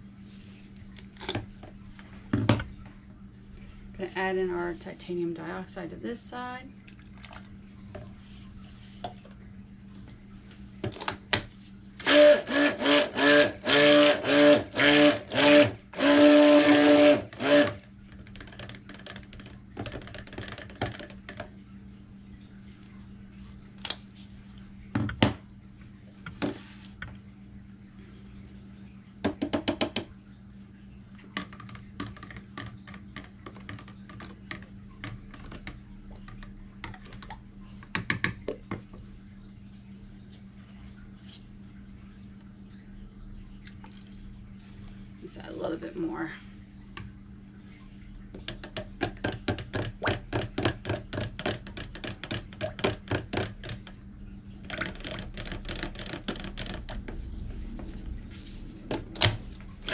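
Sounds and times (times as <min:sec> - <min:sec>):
stick blender bursts: 0:12.0 - 0:17.8.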